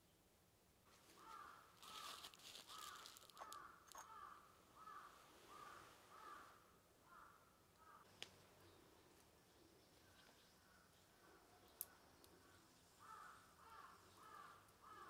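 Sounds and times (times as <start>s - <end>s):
papery rustle: 1.0s - 3.6s
crow cawing: 1.2s - 8.0s, 13.0s - 15.0s.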